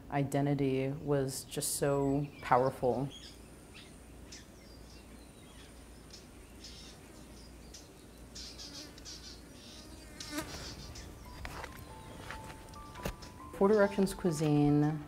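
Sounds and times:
bird chirps: 0:02.0 - 0:14.2
insect buzz: 0:03.1 - 0:13.4.

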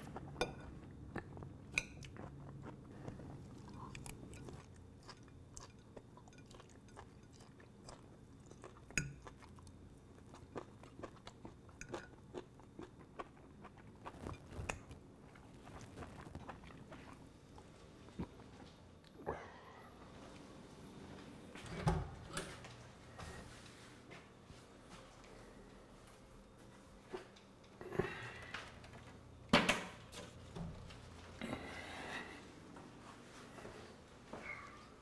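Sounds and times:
faint chewing: 0:00.0 - 0:20.5
low room hum: 0:00.0 - 0:35.0.

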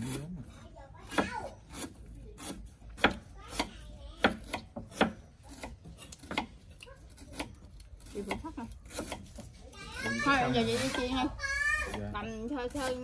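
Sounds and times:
knife chopping on wooden board: 0:01.0 - 0:09.5.

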